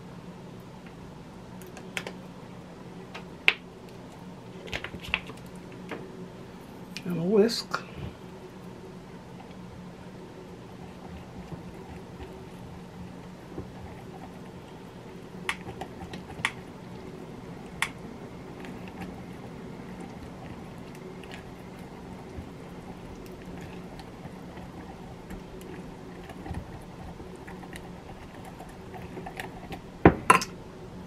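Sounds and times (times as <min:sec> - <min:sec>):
steady low hum: 0:00.0 - 0:31.0
batter squishing with spoon: 0:09.1 - 0:30.6.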